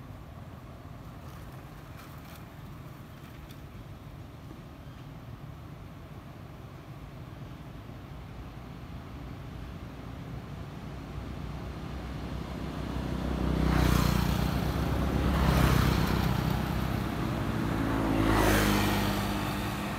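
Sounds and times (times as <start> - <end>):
vehicles passing on road: 0.0 - 19.9.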